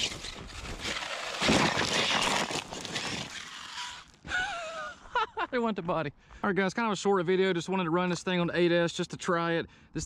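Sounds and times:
toy truck tires spinning through grass: 0.0s - 4.4s
man talking: 5.5s - 10.0s.

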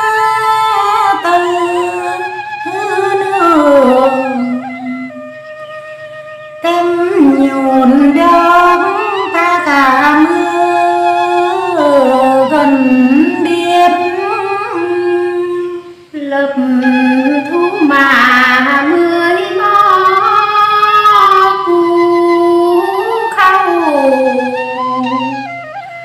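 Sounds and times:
woman singing unaccompanied: 0.0s - 5.2s, 6.6s - 25.5s.

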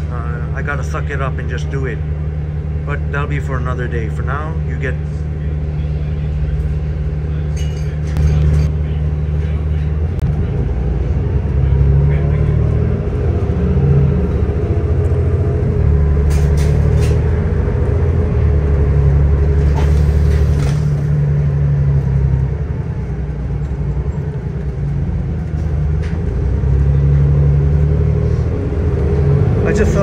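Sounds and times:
bus engine and road rumble: 0.0s - 30.0s.

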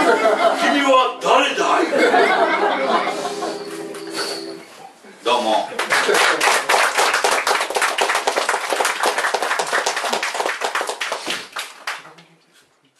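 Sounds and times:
audience clapping: 5.7s - 12.2s.

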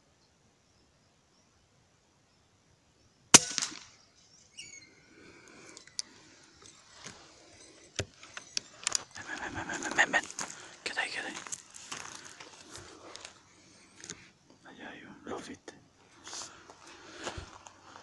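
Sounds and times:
air rifle shot: 3.4s - 4.0s
faint rustling: 5.3s - 14.6s
sharp clicks: 7.9s - 9.5s.

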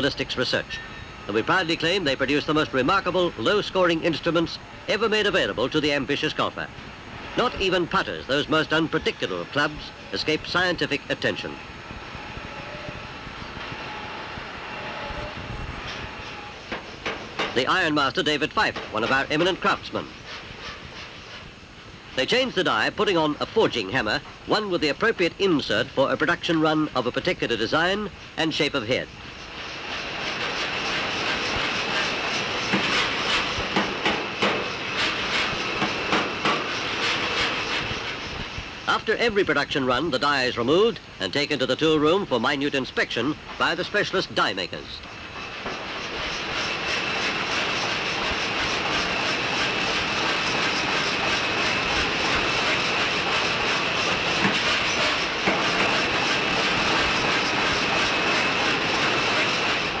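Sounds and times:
high machine whine: 0.0s - 20.2s.

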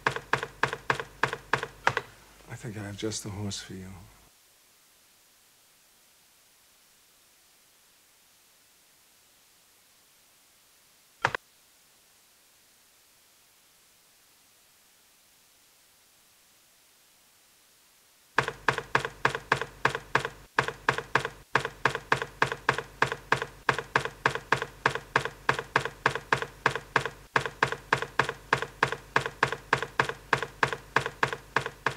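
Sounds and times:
keyboard key clicks: 0.0s - 2.1s.

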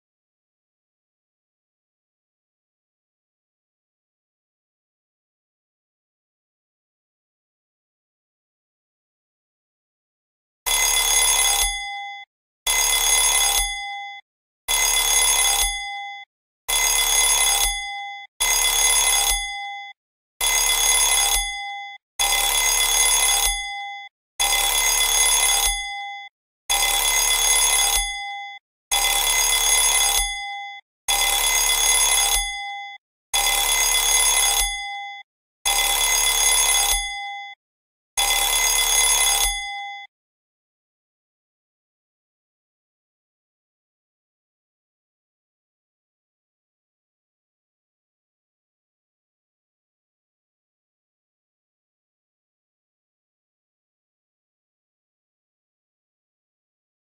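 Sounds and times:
mobile phone bell-like ring: 10.7s - 37.6s, 38.2s - 40.1s.

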